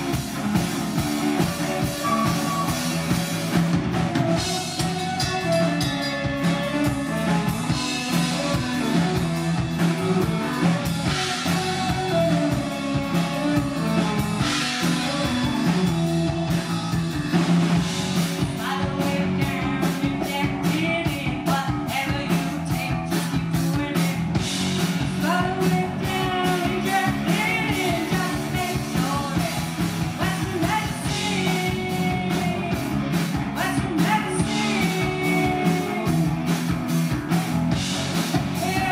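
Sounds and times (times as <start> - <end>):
drum kit: 0.0 - 38.9
electric bass: 0.0 - 38.9
electric guitar: 0.0 - 38.9
flute melody: 1.4 - 3.2
woman singing lead vocal: 18.4 - 24.4, 25.0 - 36.4, 38.5 - 38.9.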